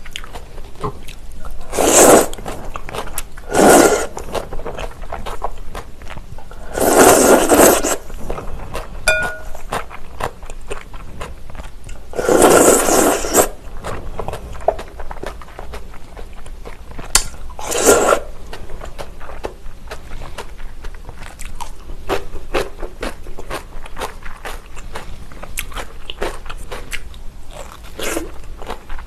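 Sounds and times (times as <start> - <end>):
soft chewing: 0.0 - 29.0
loud noodle slurps: 1.7 - 2.5, 3.4 - 4.3, 6.6 - 8.1, 12.1 - 13.6, 17.6 - 18.3.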